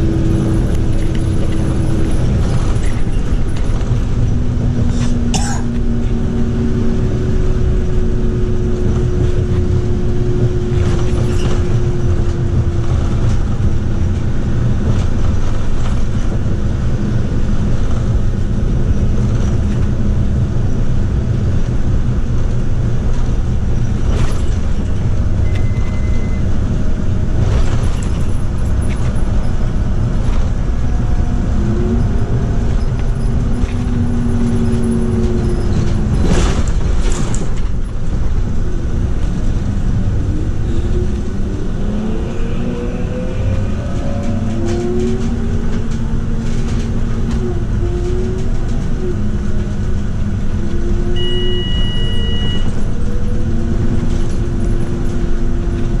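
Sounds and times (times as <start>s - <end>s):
bus engine and road rumble: 0.0s - 56.0s
transmission whine: 23.7s - 56.0s.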